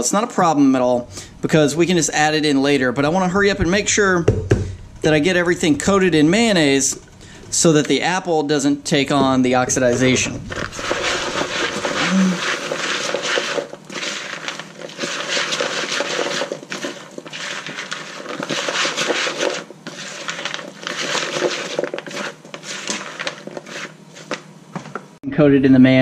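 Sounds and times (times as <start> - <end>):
spatula scraping plastic bowl: 9.2 - 24.9.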